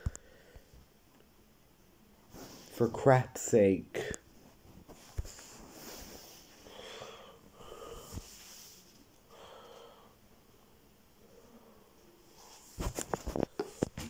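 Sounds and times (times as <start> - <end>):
person breathing softly: 0.0 - 0.9, 5.2 - 10.3, 11.2 - 12.8.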